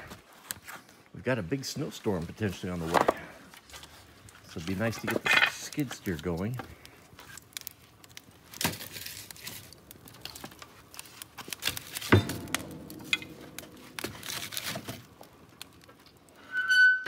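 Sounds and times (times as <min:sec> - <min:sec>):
logs knocking against wood stove: 0:11.6 - 0:15.9.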